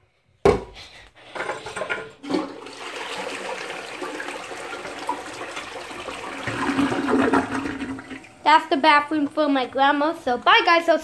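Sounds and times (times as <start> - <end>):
toilet flushing: 1.2 - 11.0
water gurgling and splashing: 2.2 - 11.0.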